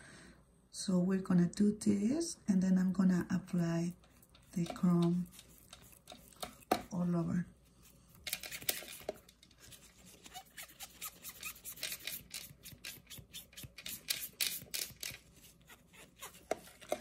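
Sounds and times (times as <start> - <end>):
sponge rubbing on nail: 4.0 - 6.9, 9.6 - 17.0.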